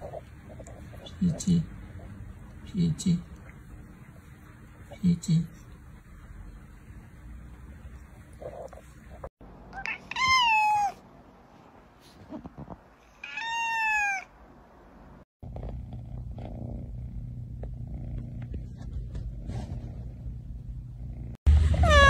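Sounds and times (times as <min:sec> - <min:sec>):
steady low hum: 0:00.0 - 0:09.7, 0:14.9 - 0:21.8
cat meowing: 0:09.7 - 0:11.0, 0:13.2 - 0:14.3, 0:21.7 - 0:22.0.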